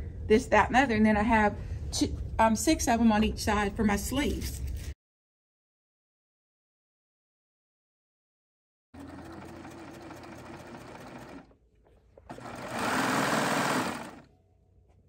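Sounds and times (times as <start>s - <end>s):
serger stitching: 9.0s - 11.6s, 12.2s - 14.3s.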